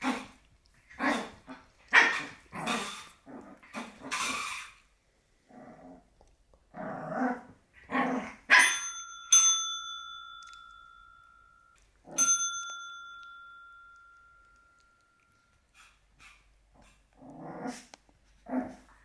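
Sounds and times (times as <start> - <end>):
puppy barking: 1.9 - 2.9, 8.5 - 8.9
call bell dinging: 8.6 - 15.4.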